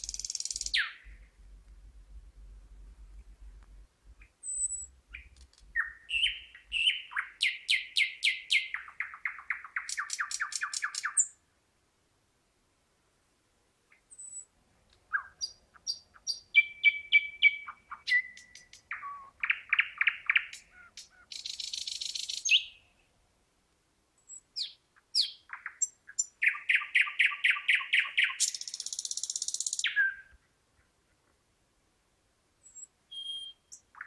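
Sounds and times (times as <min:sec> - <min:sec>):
thrush nightingale singing: 0:00.0 - 0:01.4, 0:04.2 - 0:11.4, 0:13.9 - 0:14.5, 0:15.1 - 0:23.1, 0:24.2 - 0:30.9, 0:32.6 - 0:34.0.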